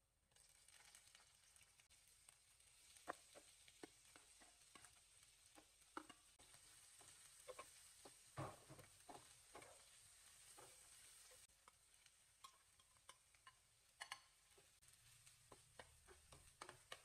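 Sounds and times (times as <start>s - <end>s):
mushrooms sizzling in a pan: 0.1s - 17.0s
raw rice poured into a pan: 0.3s - 3.9s
metal spatula scraping a pan: 2.9s - 17.0s.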